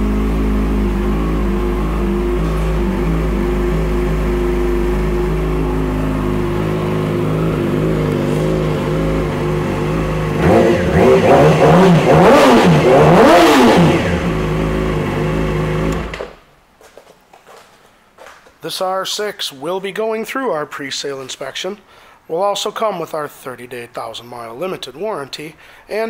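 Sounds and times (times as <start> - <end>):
motorcycle engine idling and revving: 0.0 - 16.3.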